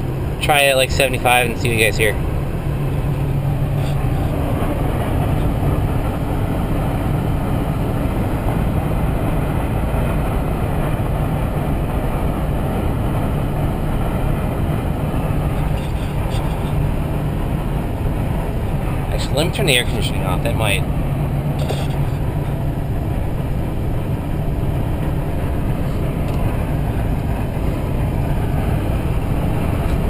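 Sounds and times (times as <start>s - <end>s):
low drone of engine and road: 0.0s - 30.0s
wind rush in car cabin: 0.0s - 30.0s.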